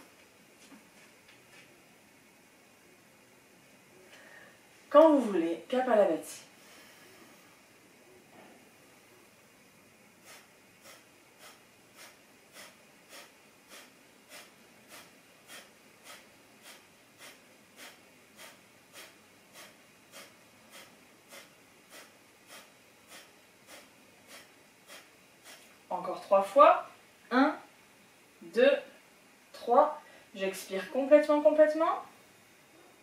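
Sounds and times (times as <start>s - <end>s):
forceful exhalations through nose: 10.2s - 25.7s.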